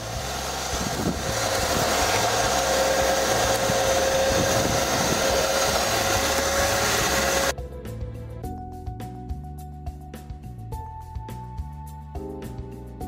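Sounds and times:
air rushing through vacuum hose: 0:00.0 - 0:07.5
high vacuum motor whine: 0:00.0 - 0:07.5.

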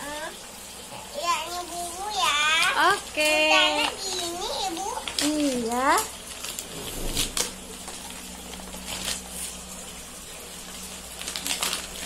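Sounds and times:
plastic bag crinkling: 0:02.6 - 0:12.0.

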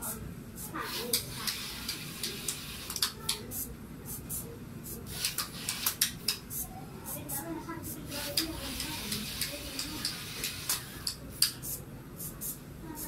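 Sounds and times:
motor clicks and ticks: 0:00.9 - 0:03.4, 0:05.1 - 0:06.4, 0:08.2 - 0:11.6.

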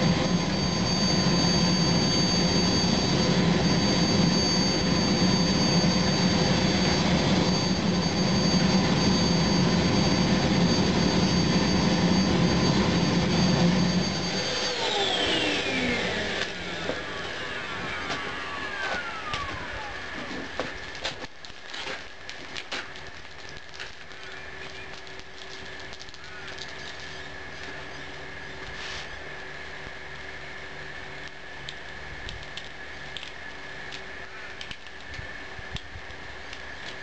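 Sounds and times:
whine falling in pitch: 0:00.0 - 0:21.3
furnace rushing and whining: 0:00.0 - 0:22.2.

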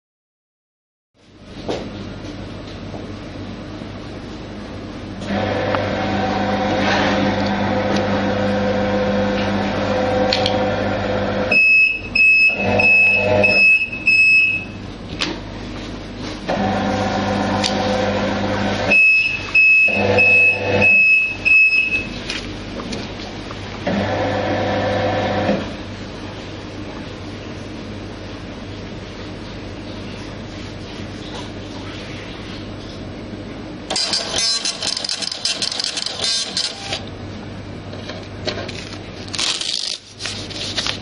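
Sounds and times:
conveyor belt motor running: 0:02.6 - 0:30.7
short high alarm beeps: 0:11.5 - 0:14.8, 0:18.9 - 0:22.1.

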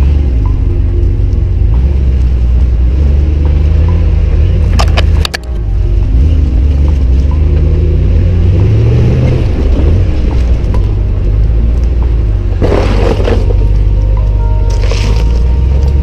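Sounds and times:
truck engine and tyres rumbling: 0:00.0 - 0:16.0
mud and water splash: 0:14.7 - 0:15.9.

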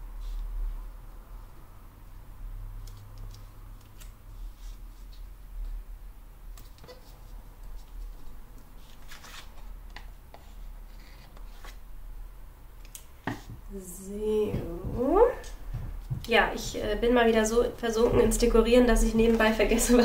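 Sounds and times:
low steady hum: 0:00.0 - 0:20.0
paper rustling: 0:06.6 - 0:11.8.

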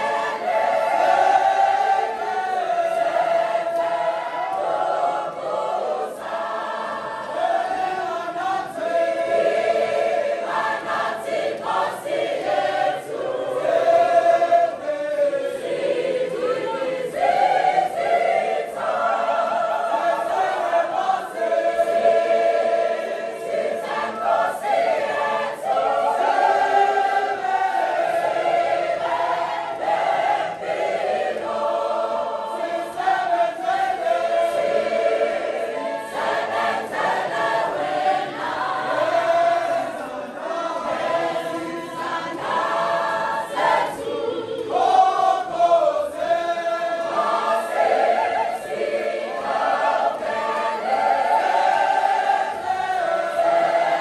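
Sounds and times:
choir singing a hymn: 0:00.0 - 0:54.0.

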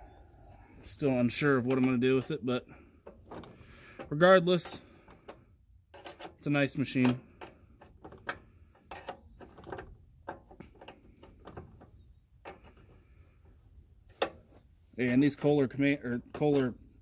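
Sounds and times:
wrench clinking on bolt: 0:05.9 - 0:07.5.

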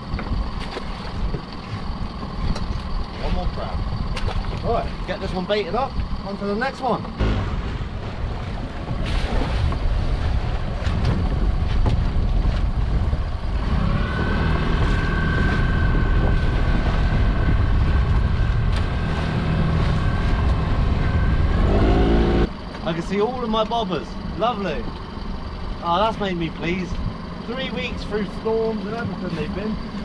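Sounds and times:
wind buffeting microphone: 0:00.0 - 0:22.5
outboard motor running: 0:00.0 - 0:30.0.

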